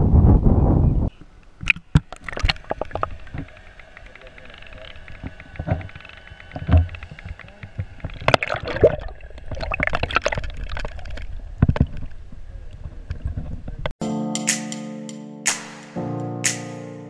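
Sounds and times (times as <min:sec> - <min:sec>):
knocks and splashes: 0:01.6 - 0:12.1
water sloshing and gurgling: 0:01.6 - 0:13.6
guitar music: 0:14.0 - 0:17.0.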